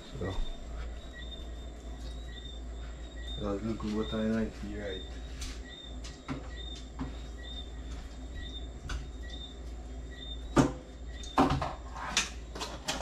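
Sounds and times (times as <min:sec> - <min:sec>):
steady low hum: 0:00.0 - 0:12.9
kitchen items clattering: 0:10.6 - 0:13.0.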